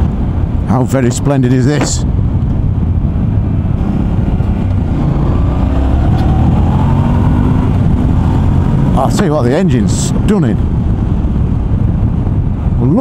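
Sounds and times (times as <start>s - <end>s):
wind and road noise: 0.0s - 13.0s
motorcycle engine accelerating: 2.9s - 12.2s.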